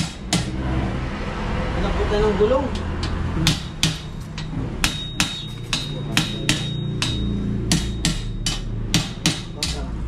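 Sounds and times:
faint metallic ring: 0:04.0 - 0:08.6.

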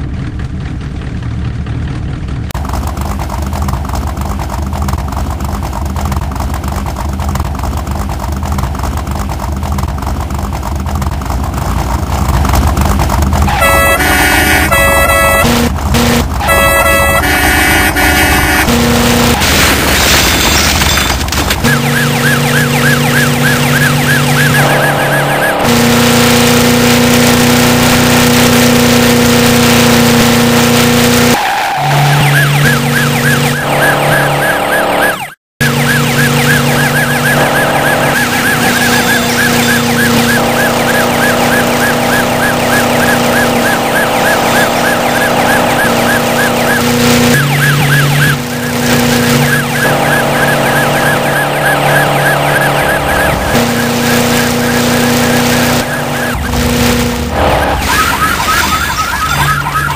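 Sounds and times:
engine drone: 0:00.0 - 0:59.9
warbling police siren: 0:13.5 - 0:19.4, 0:21.6 - 0:59.9.

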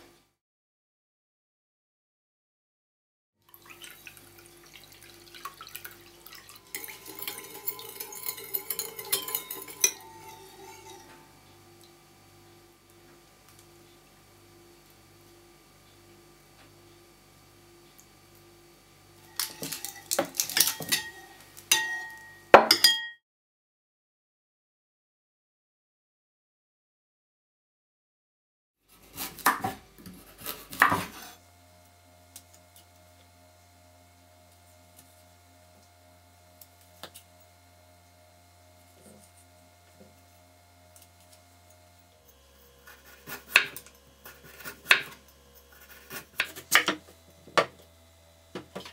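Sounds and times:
metal spoon clinking in bowl: 0:06.6 - 0:11.1, 0:19.3 - 0:23.2
knife slicing carrot on board: 0:28.9 - 0:31.4, 0:42.8 - 0:47.8.

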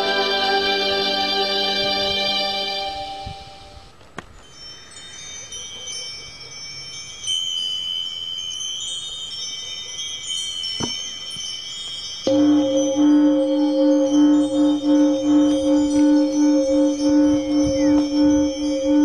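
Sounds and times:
high chime-like tones: 0:00.0 - 0:19.0
low held notes: 0:12.3 - 0:19.0.

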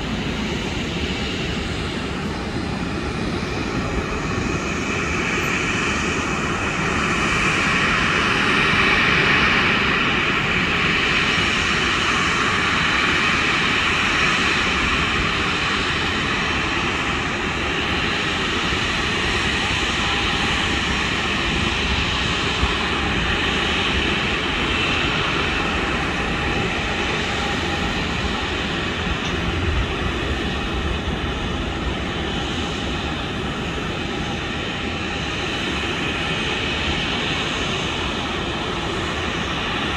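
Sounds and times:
jet engines with high whine: 0:00.0 - 0:39.9.

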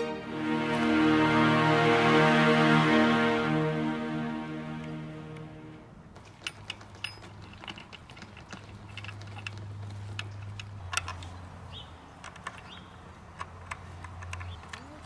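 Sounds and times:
low steady hum: 0:00.0 - 0:06.1
small metallic clinks: 0:06.2 - 0:11.3.

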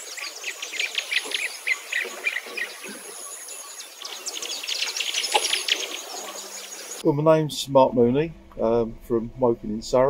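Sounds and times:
small birds chirping: 0:00.0 - 0:07.0.

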